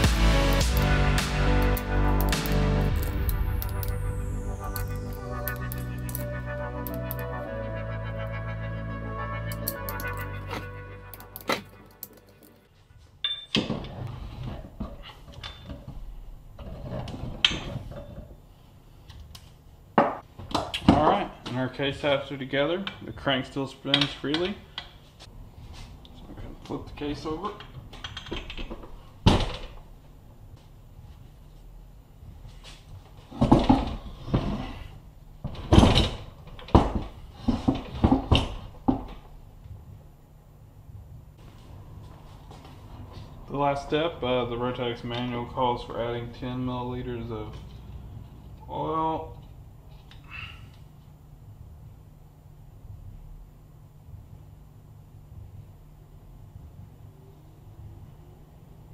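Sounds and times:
tool clicks: 9.5 - 12.6.

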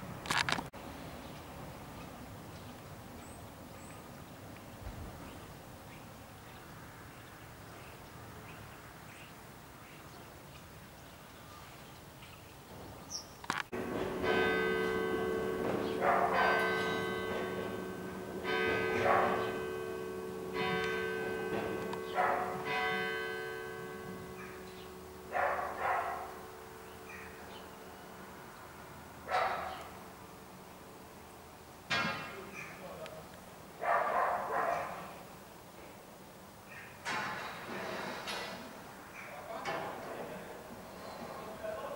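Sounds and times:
church bell tolling: 13.7 - 31.2.

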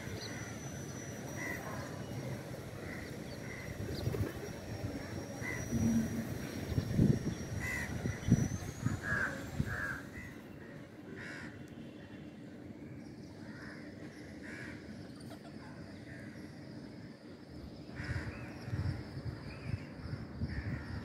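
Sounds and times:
low buffeting noise: 0.0 - 21.0
crow cawing: 11.2 - 11.6.

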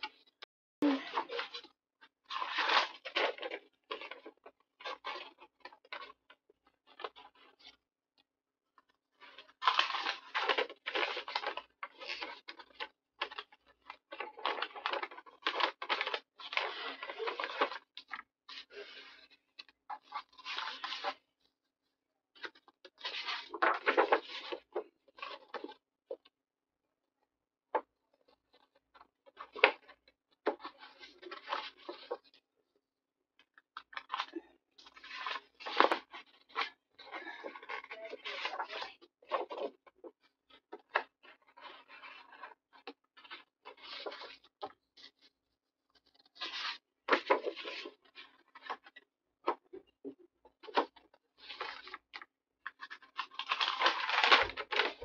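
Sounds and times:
paper rustling: 9.6 - 21.2, 22.4 - 26.2, 29.3 - 32.4, 33.9 - 39.8, 40.5 - 45.3, 46.0 - 48.9, 50.6 - 55.0.

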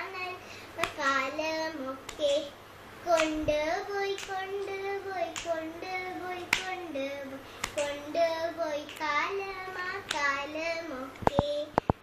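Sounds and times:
hand clap: 0.8 - 1.0, 2.1 - 2.4, 3.1 - 3.4, 4.1 - 4.6, 5.3 - 5.7, 6.4 - 6.8, 7.6 - 8.1, 8.8 - 9.4, 10.0 - 10.4.

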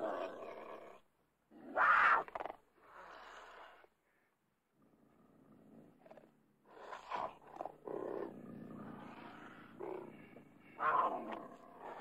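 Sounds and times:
cougar rasping growl: 4.8 - 12.0
cougar snarling: 5.2 - 12.0.

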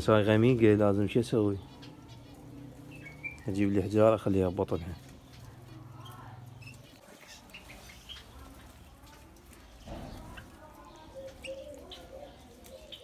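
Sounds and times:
small birds chirping: 0.0 - 13.0
wavering cooing call: 11.1 - 13.0.

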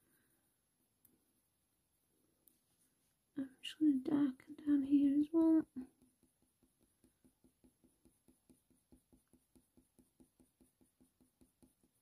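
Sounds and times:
pencil shading on paper: 4.5 - 12.0.

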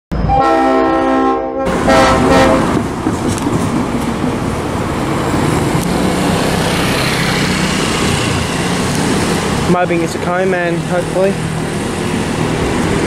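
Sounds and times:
locomotive horn blast: 0.2 - 2.8.

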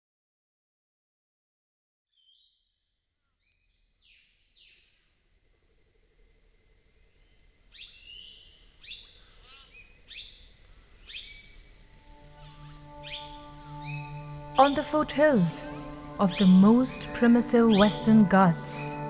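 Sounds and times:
forest birds calling: 7.1 - 19.0
soft music: 11.6 - 19.0.

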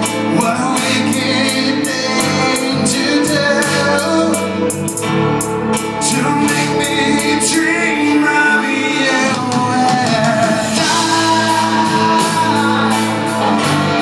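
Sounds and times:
live band playing rock ballad: 0.0 - 14.0
cymbals keeping beat: 9.4 - 14.0.

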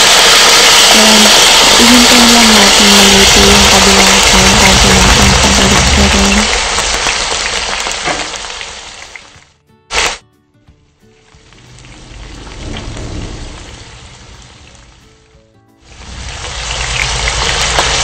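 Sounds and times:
meat sizzling in a frying pan: 0.0 - 10.2, 15.9 - 18.0.

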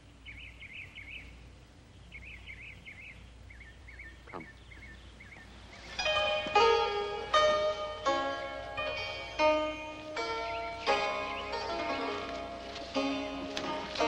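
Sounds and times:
birds chirping and warbling: 0.0 - 14.0
faint background hiss: 0.0 - 14.0
plucked-string music: 5.9 - 14.0.

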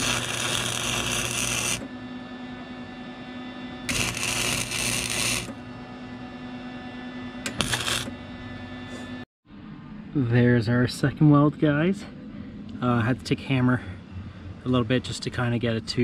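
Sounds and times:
welding arc noise: 0.0 - 2.0, 3.8 - 5.6, 7.4 - 8.2
steady hum: 0.0 - 16.0.

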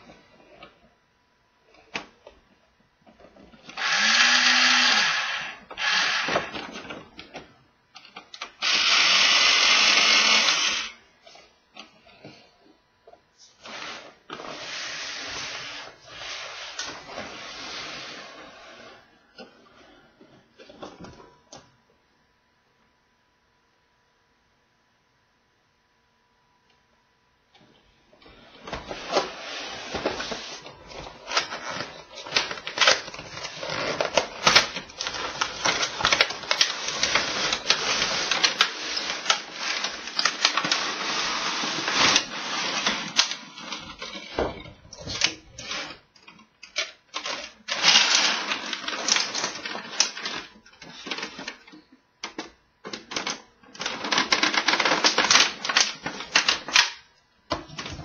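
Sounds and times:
plastic and cardboard crinkling: 28.3 - 58.0.

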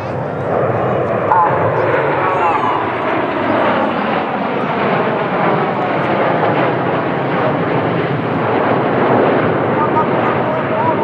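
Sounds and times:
jet engines roaring: 0.0 - 11.0.

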